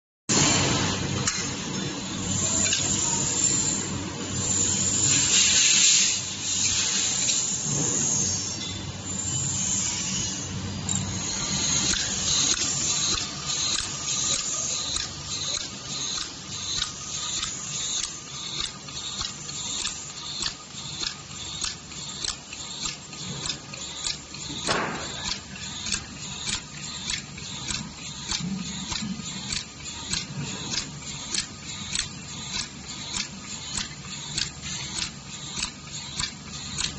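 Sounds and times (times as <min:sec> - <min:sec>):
rushing air hiss: 0:04.4 - 0:08.4.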